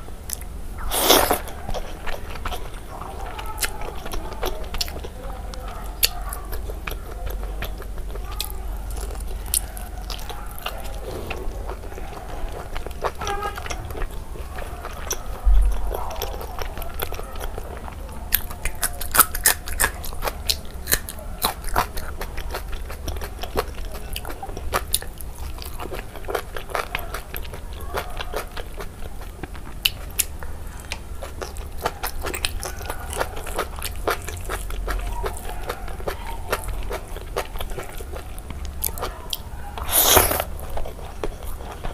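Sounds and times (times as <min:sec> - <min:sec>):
wet chewing and smacking: 0:00.2 - 0:41.9.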